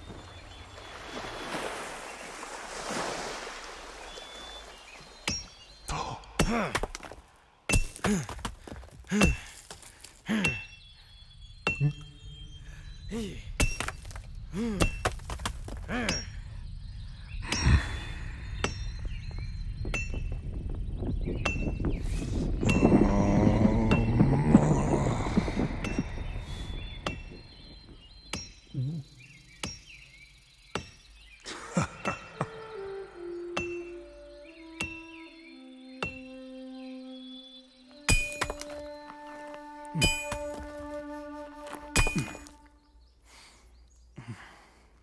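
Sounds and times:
hammer and chisel striking rock: 0:05.2 - 0:05.6, 0:06.4 - 0:10.8, 0:13.6 - 0:16.3, 0:28.3 - 0:28.6, 0:29.6 - 0:30.0, 0:30.7 - 0:31.1, 0:36.0 - 0:36.2, 0:38.0 - 0:38.9, 0:40.0 - 0:40.8, 0:42.0 - 0:42.6.

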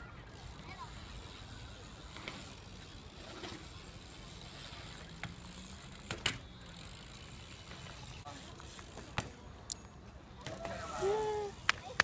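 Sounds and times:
bike tyres rolling on concrete: 0:00.0 - 0:12.0
bike clacking against concrete: 0:02.0 - 0:03.8, 0:04.8 - 0:09.8.

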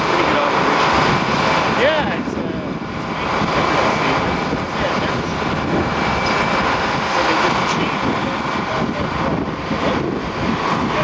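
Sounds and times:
loud machinery din: 0:00.0 - 0:11.0.

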